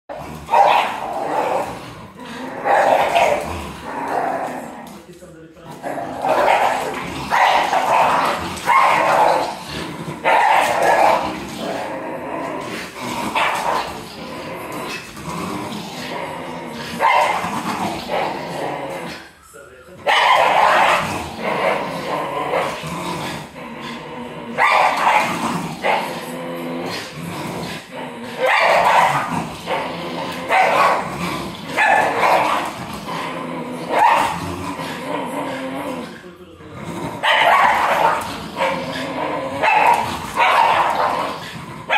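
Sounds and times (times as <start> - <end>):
dogs growling in play: 0.0 - 19.4, 20.0 - 41.9
dog barking: 0.5 - 1.0, 8.7 - 9.4, 10.3 - 11.2, 17.0 - 17.4, 20.1 - 21.0, 24.6 - 26.0, 28.4 - 29.3, 30.5 - 31.0, 33.9 - 34.4, 37.2 - 38.7, 39.6 - 41.2.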